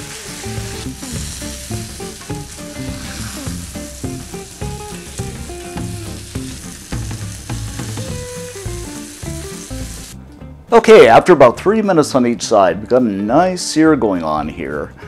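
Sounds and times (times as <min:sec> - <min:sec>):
chicken sizzling in oil: 0:00.0 - 0:10.2
background music: 0:00.0 - 0:15.0.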